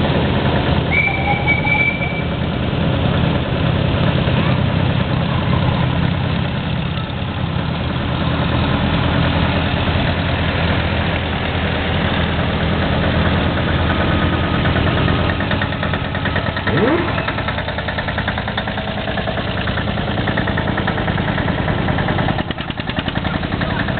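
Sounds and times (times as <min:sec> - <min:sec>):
tractor engines driving past: 0:00.0 - 0:23.9
small engine rapid firing: 0:16.4 - 0:18.1.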